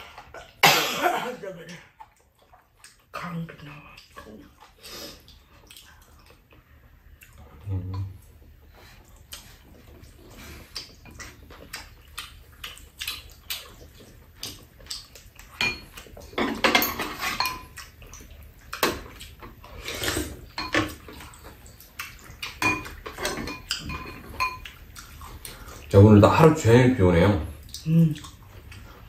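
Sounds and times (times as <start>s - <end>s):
chopsticks and spoons on bowls: 14.4s - 18.2s, 18.8s - 26.5s.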